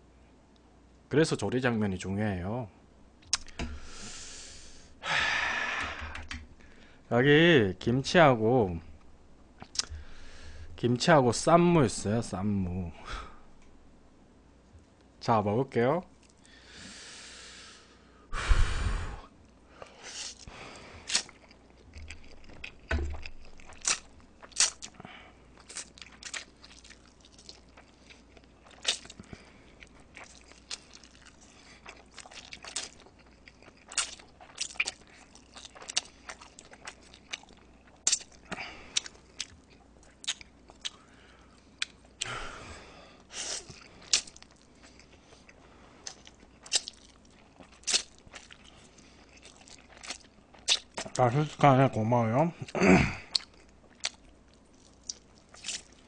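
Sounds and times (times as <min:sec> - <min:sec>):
noodle slurping and chewing: 0:20.1 - 0:25.0, 0:25.6 - 0:41.1, 0:43.3 - 0:51.2, 0:53.3 - 0:56.0.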